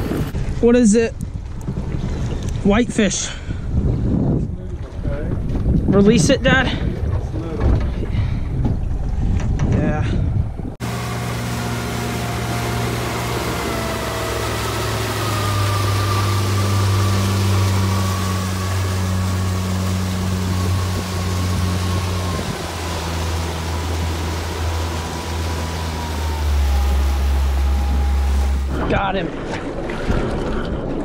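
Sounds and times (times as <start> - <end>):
water and wind rushing: 0.0 - 31.0
outboard motor droning: 10.8 - 31.0.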